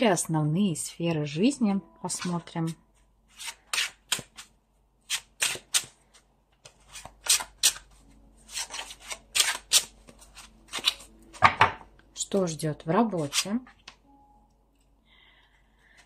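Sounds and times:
cards being shuffled: 0:05.1 - 0:11.5.

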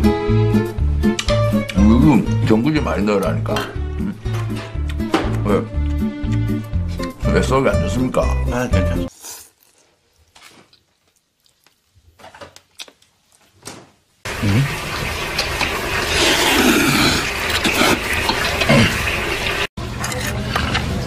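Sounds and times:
faint eating noises: 0:09.1 - 0:13.6, 0:14.3 - 0:21.0
wet slurping of noodles: 0:16.0 - 0:19.0.

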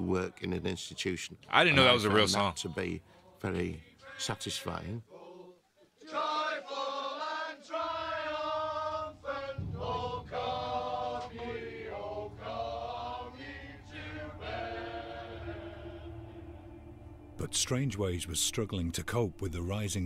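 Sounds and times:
men singing together: 0:03.5 - 0:16.4
low steady drone: 0:08.1 - 0:20.0.

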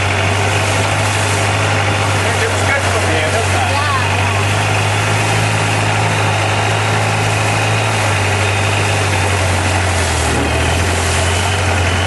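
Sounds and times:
hiss of wind and spray: 0:00.0 - 0:03.6, 0:04.2 - 0:12.0
boat engine droning: 0:00.0 - 0:12.0.

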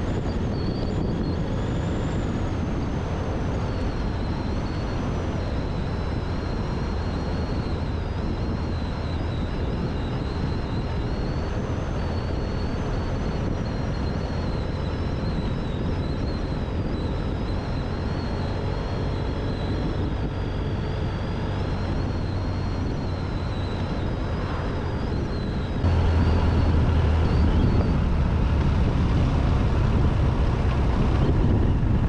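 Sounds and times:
wind rushing on microphone: 0:00.0 - 0:32.0
motorcycle engine running: 0:25.8 - 0:32.0.

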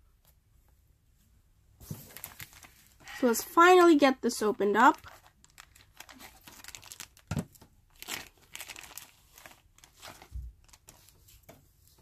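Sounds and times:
plastic wrapper crinkling: 0:01.8 - 0:11.2.

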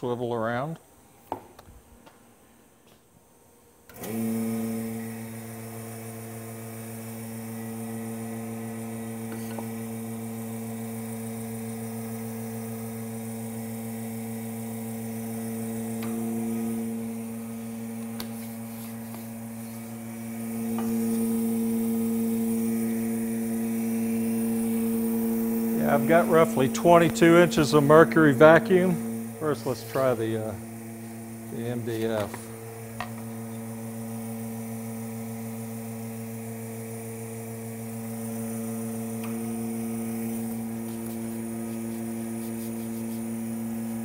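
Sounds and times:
vacuum pump humming: 0:03.9 - 0:44.0.

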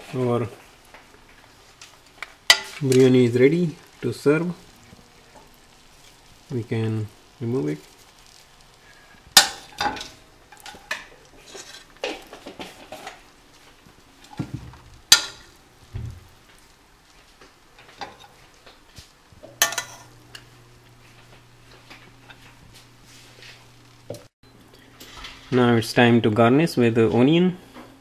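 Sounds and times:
spoon scraping rice from pan: 0:09.5 - 0:13.2
metal clinking against dishes: 0:19.5 - 0:20.2.

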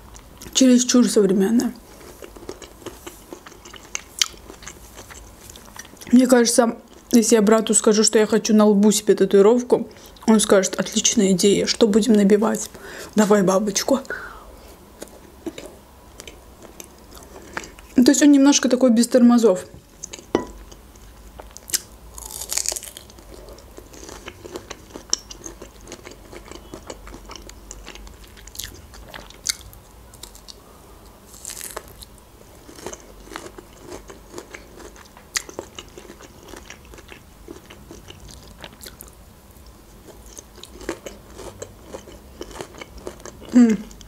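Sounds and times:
person chewing peach: 0:01.8 - 0:06.1, 0:19.9 - 0:39.2, 0:40.0 - 0:44.0.

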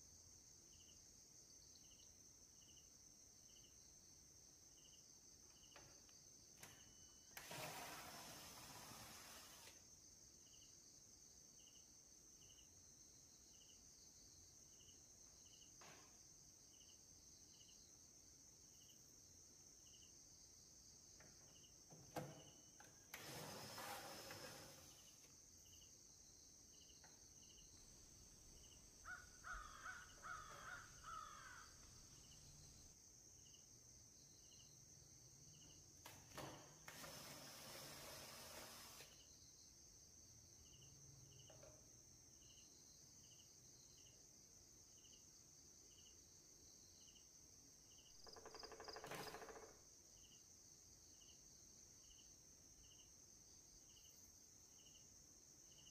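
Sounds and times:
faint cricket chirping: 0:00.0 - 0:55.9
power drill unscrewing screws: 0:07.4 - 0:09.8, 0:22.8 - 0:25.1, 0:36.3 - 0:39.1
bird calling: 0:29.0 - 0:31.9.

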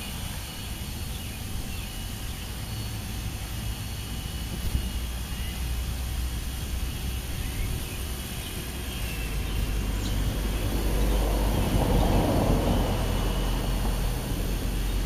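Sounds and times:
low background hum: 0:00.0 - 0:15.0
vehicle passing rumble: 0:04.8 - 0:15.0.

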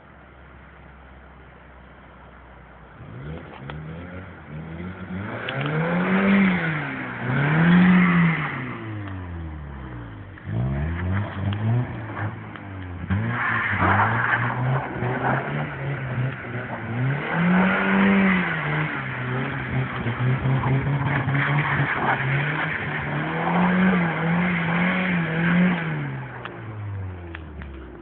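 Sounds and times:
car engine revving: 0:02.8 - 0:28.0
wheels spinning in snow: 0:10.4 - 0:26.9.

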